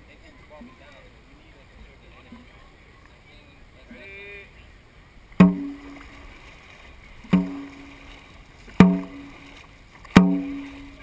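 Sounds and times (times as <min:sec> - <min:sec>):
barrel drum beats: 0:05.4 - 0:06.1, 0:07.2 - 0:08.0, 0:08.7 - 0:09.5, 0:10.1 - 0:11.0.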